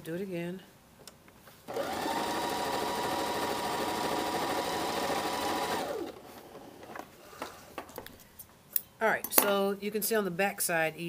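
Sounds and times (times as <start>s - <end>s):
sewing machine stitching: 1.7s - 6.9s.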